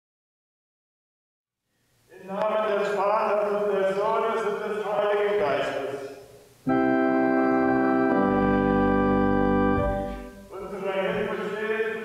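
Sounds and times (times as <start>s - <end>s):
organ chord: 6.6s - 11.6s
low bass note: 7.6s - 10.5s.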